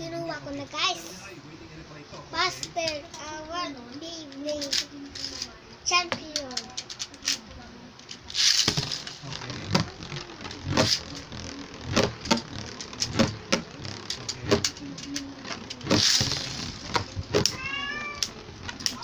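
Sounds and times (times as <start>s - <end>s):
spinning top clicks and knocks: 3.9s - 5.5s, 6.1s - 19.0s
ripcord launcher zip: 8.2s - 19.0s.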